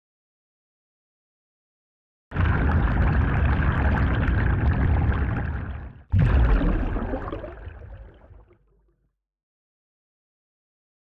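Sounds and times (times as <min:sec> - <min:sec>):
liquid pouring and gurgling: 0:02.3 - 0:08.8.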